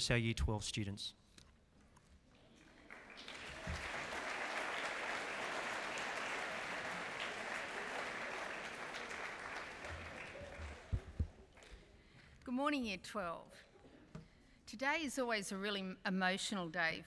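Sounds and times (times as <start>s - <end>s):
audience applauding: 2.6s - 11.8s.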